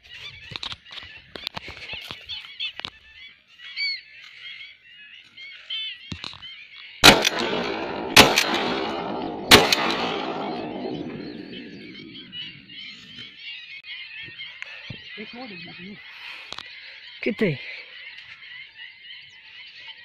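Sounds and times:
flock of waterbirds calling: 0:00.0 - 0:20.0
shotgun shots with echo: 0:07.0 - 0:12.8.

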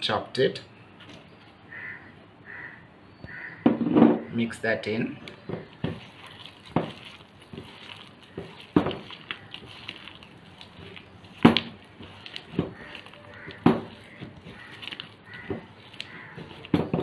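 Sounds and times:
hand mixing wet batter: 0:04.7 - 0:17.0.

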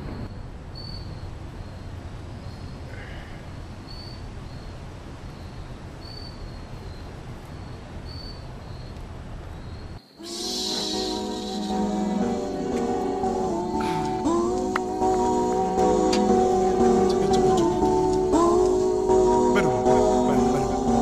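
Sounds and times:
outdoor background noise: 0:00.0 - 0:21.0.

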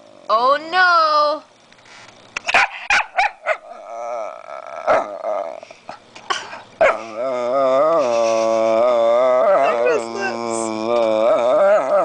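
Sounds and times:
dog grumbling and whining: 0:03.4 - 0:12.0.

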